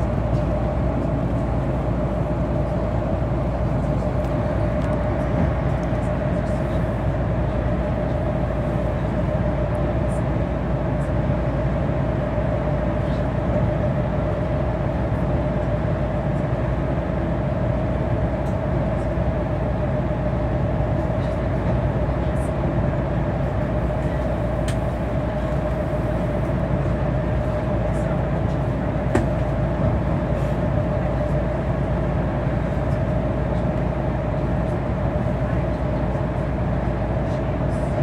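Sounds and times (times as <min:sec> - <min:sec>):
bus road rumble: 0:00.0 - 0:38.0.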